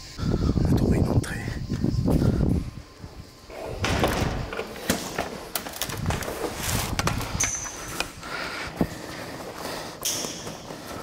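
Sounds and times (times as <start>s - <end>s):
knocks scrapes and rustling: 3.5s - 8.1s.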